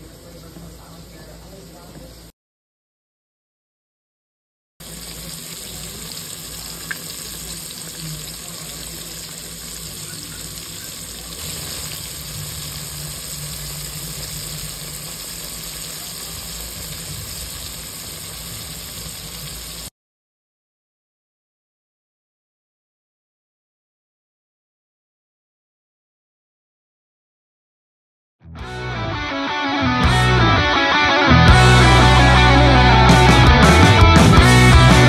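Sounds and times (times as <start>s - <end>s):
meat sizzling in oil: 4.8s - 19.9s.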